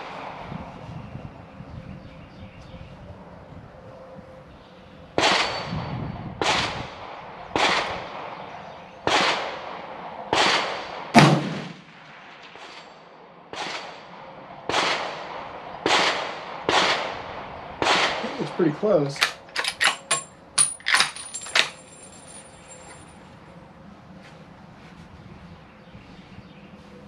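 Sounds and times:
rifle gunshots: 7.6s - 8.4s, 9.0s - 12.9s, 13.5s - 14.1s, 14.7s - 18.5s.

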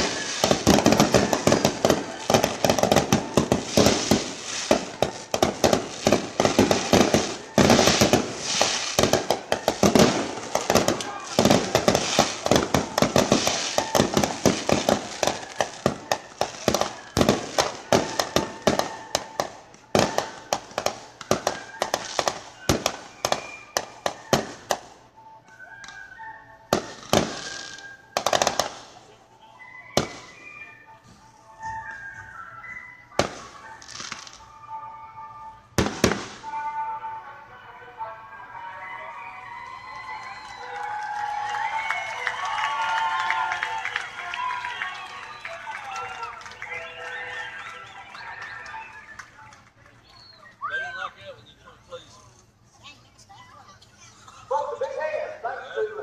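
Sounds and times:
fireworks bangs and crackles: 0.0s - 25.0s, 26.7s - 29.2s, 29.9s - 30.6s, 33.1s - 34.5s, 35.8s - 36.8s.

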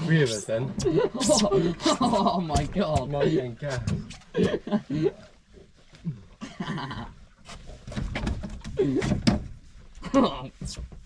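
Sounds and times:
man laughing: 0.8s - 3.8s, 6.4s - 7.1s.

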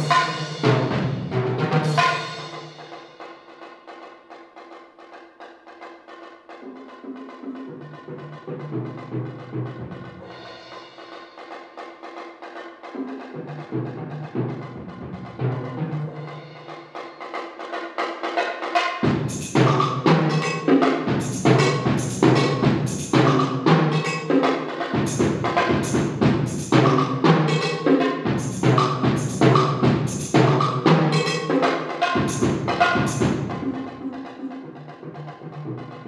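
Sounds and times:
toms and bass drum playing: 0.0s - 3.6s, 12.9s - 36.0s.

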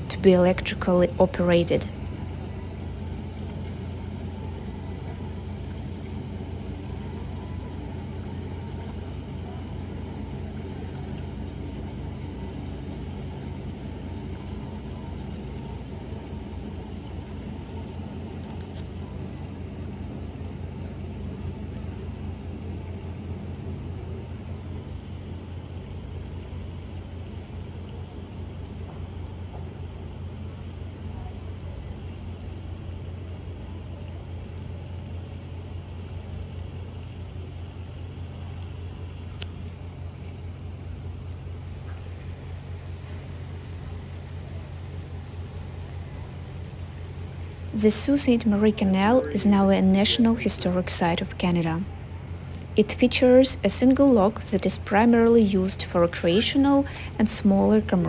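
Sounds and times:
low mechanical rumble with hum: 0.0s - 58.0s
faint click: 38.6s - 39.6s.

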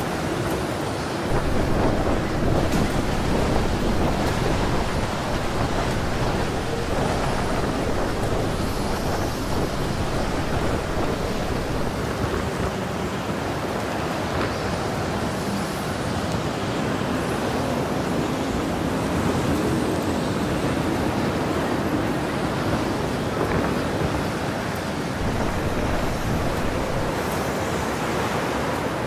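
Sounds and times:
storm wind blowing: 1.2s - 13.2s, 25.2s - 29.0s
wind buffeting microphone: 1.3s - 13.0s, 25.2s - 27.8s.

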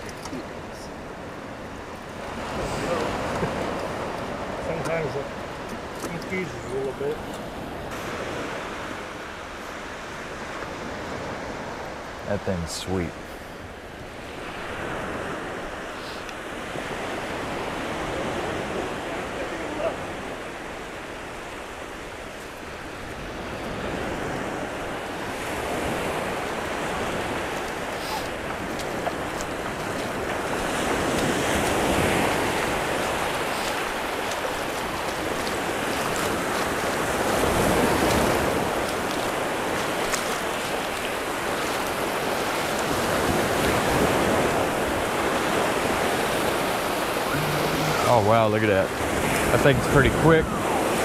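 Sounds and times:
surf waves breaking on shore: 0.0s - 51.0s.

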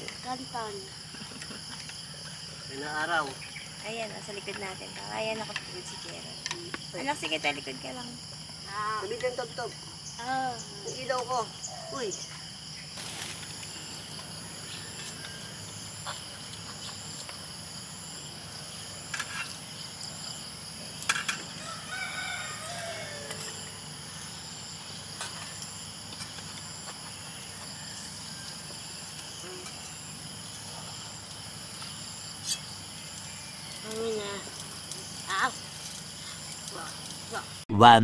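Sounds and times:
insects chirping: 0.0s - 38.0s
rooster crowing: 14.3s - 15.8s, 21.5s - 23.9s.

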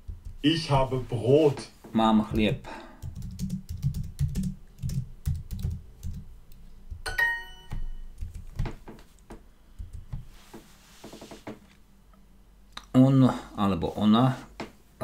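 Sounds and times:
typing on computer keyboard: 3.0s - 6.3s, 7.7s - 8.8s
bright ding chime: 7.1s - 8.0s.

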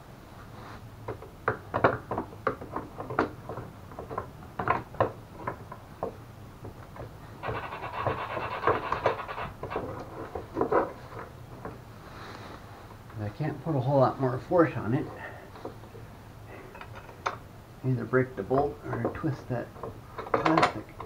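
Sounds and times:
tools knocking and clicking: 1.1s - 11.8s, 19.8s - 21.0s
rapid rattling: 7.4s - 10.4s.

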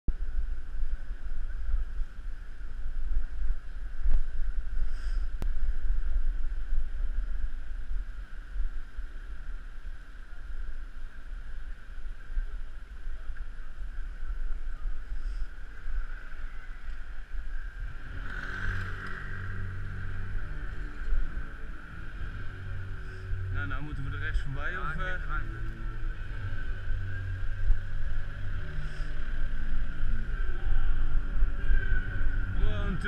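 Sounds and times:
deep hum: 12.3s - 33.0s.

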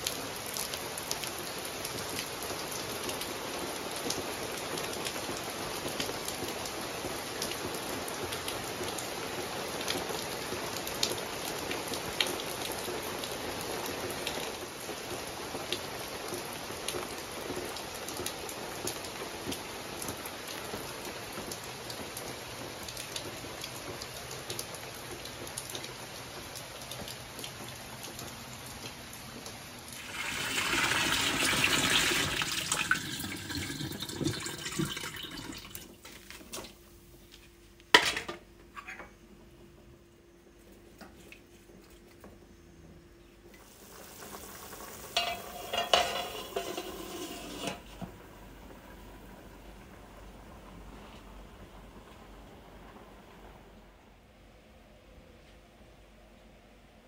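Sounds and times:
rain falling under eaves: 0.0s - 56.8s
water drips: 26.9s - 36.8s
water running into a pot: 30.0s - 36.1s, 43.6s - 48.1s.

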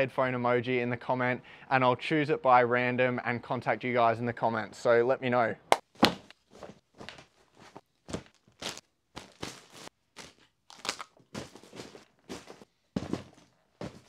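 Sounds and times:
plastic bags rustling: 6.4s - 14.0s
items knocking in suitcase: 11.4s - 14.0s.

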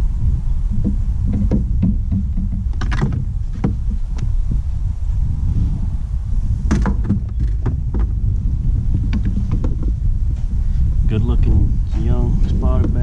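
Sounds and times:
wind buffeting microphone: 0.0s - 13.0s
sharp clicks and knocks: 0.7s - 4.3s, 9.1s - 9.9s.

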